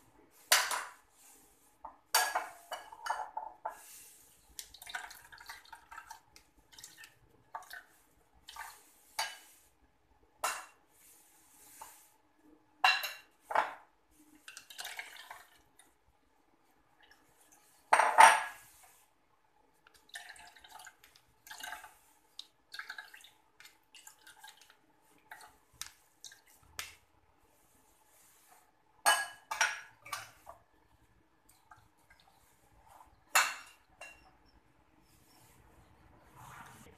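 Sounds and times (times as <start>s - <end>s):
dripping liquid: 4.6s - 7.9s, 19.9s - 25.6s.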